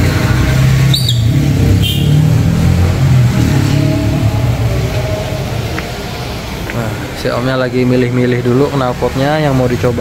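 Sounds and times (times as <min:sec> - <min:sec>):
car engine droning: 0:00.0 - 0:10.0
high chirps: 0:00.8 - 0:02.4.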